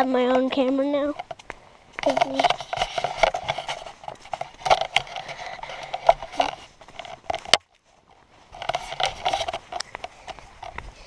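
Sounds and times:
handheld camera handling noise: 0:01.2 - 0:07.7.

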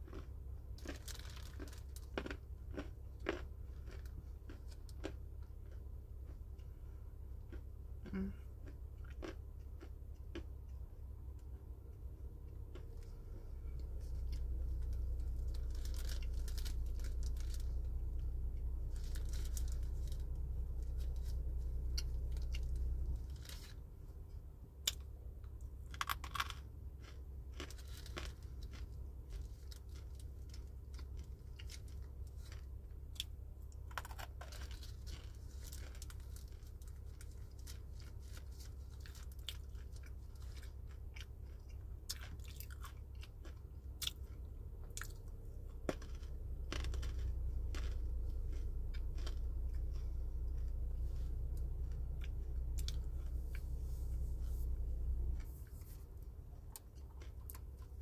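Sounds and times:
chewing and crunching: 0:00.0 - 0:58.0
steady low hum: 0:00.0 - 0:58.0.

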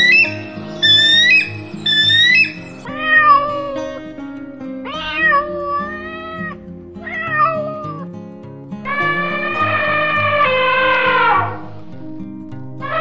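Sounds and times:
high chirping call: 0:00.0 - 0:02.9
cat meowing: 0:00.0 - 0:03.8, 0:04.9 - 0:08.0, 0:08.9 - 0:11.6
background music: 0:00.0 - 0:13.0.

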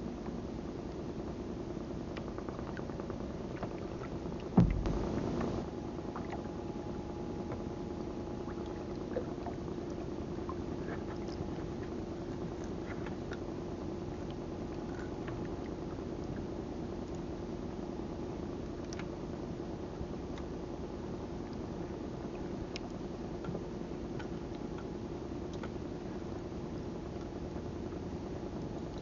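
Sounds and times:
small boat engine idling: 0:01.0 - 0:18.6
loud thump: 0:04.6 - 0:05.6.

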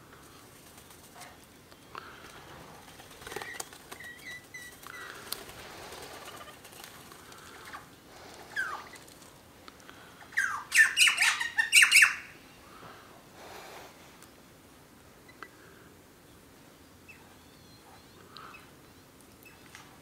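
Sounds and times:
bird wings fluttering: 0:00.2 - 0:01.5, 0:02.2 - 0:09.5
bird chirps: 0:10.3 - 0:12.3
harsh bird squawks: 0:10.4 - 0:12.4.

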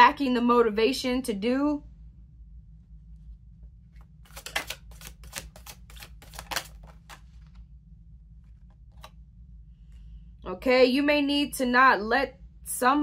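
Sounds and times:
cards being shuffled: 0:03.9 - 0:07.7, 0:08.4 - 0:09.2.

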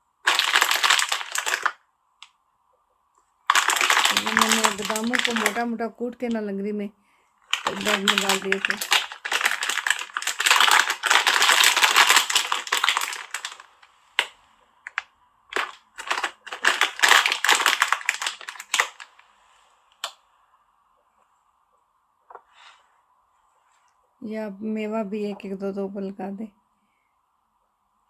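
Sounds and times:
crushed almonds crackling: 0:00.2 - 0:01.8, 0:03.4 - 0:05.6, 0:07.4 - 0:19.2.

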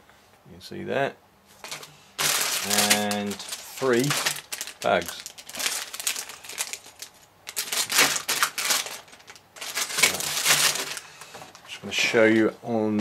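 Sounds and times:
plastic bricks rattling: 0:01.6 - 0:11.0
plastic bags crinkling: 0:01.6 - 0:11.6.

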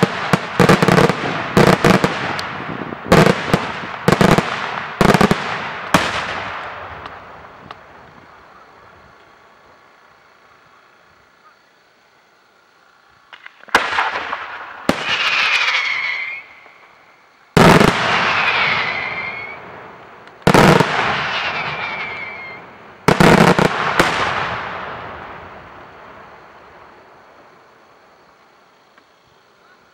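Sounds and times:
fireworks shells bursting: 0:13.2 - 0:17.0, 0:20.2 - 0:24.6.

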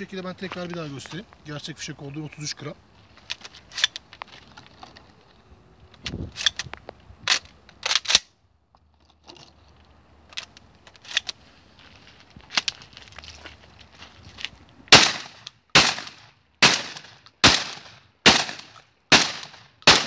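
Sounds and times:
shotgun metallic clicks: 0:06.0 - 0:08.3.

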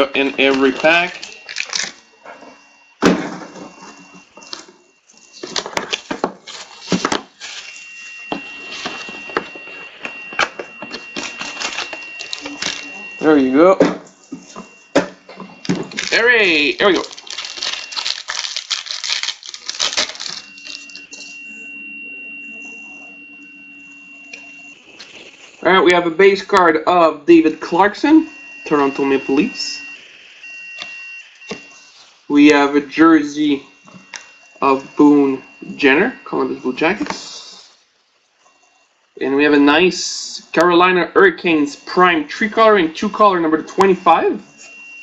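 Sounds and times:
faint high-pitched tone: 0:00.0 - 0:05.6, 0:07.6 - 0:18.2, 0:19.6 - 0:25.0, 0:25.6 - 0:37.8
foil wrappers crinkling: 0:00.3 - 0:02.0, 0:04.4 - 0:09.5, 0:10.9 - 0:12.9, 0:15.6 - 0:21.2
foil tearing: 0:00.6 - 0:02.0, 0:15.6 - 0:21.0
cards rustling: 0:15.6 - 0:21.0.

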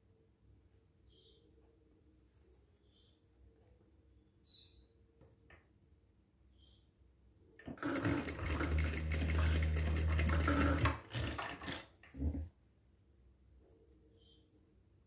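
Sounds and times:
sewing machine stitching: 0:07.6 - 0:12.3.

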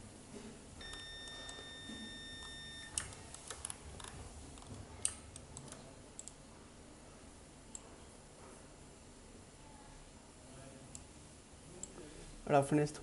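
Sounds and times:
computer mouse clicks: 0:02.9 - 0:06.4.

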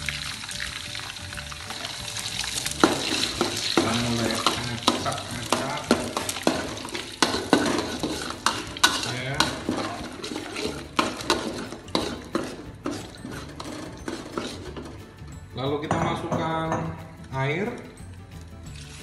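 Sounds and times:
eggs sizzling in oil: 0:00.0 - 0:15.0, 0:18.7 - 0:19.0
metal spatula scraping a wok: 0:01.7 - 0:15.1.

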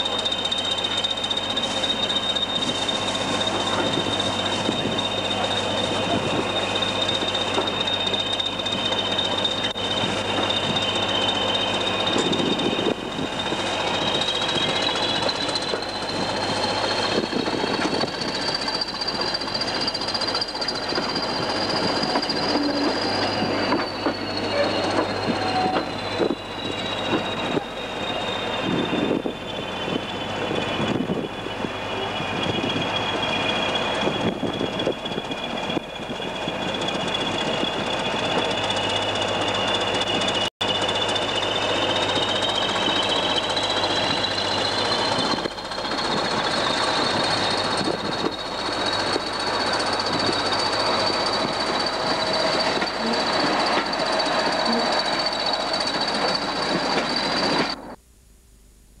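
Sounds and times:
wheels clicking on track: 0:00.0 - 0:57.9
diesel locomotive turbocharger whistle: 0:00.0 - 0:58.0
train running rumble: 0:00.0 - 0:58.0.

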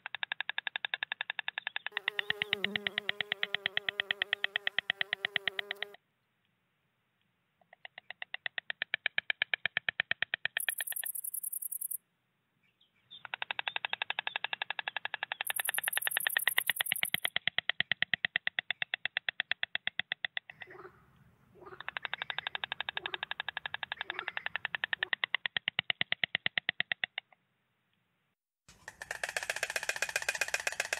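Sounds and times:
stork bill-clattering: 0:28.7 - 0:30.9.

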